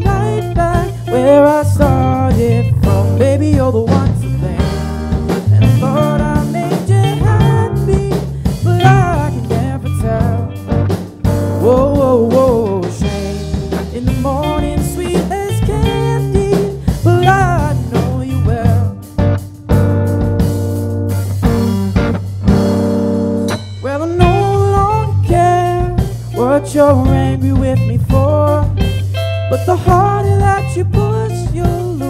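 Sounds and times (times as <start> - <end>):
lead guitar bending notes: 0.0 - 32.0
rock band playing: 0.0 - 32.0.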